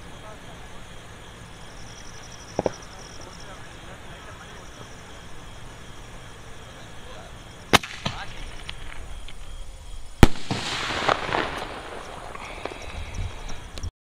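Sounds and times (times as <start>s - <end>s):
crackling sparks: 0.0s - 13.9s
firework bangs: 1.0s - 9.5s, 10.2s - 13.7s.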